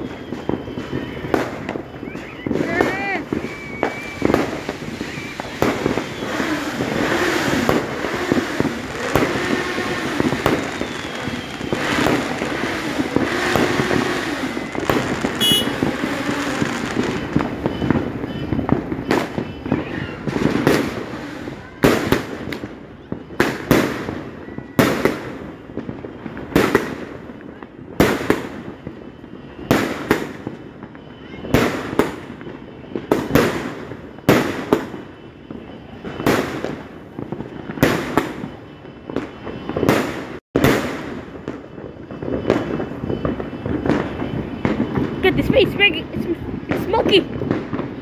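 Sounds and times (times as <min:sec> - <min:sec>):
fireworks crackling and banging: 0:00.0 - 0:48.0.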